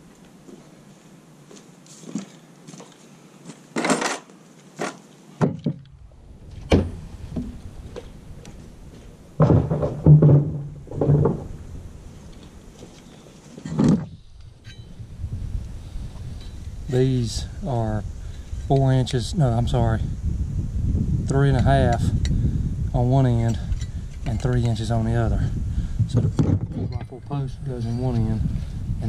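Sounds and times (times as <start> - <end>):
tools and metal hardware clunking: 3.8 - 5.9, 12.9 - 15.0, 26.1 - 27.2.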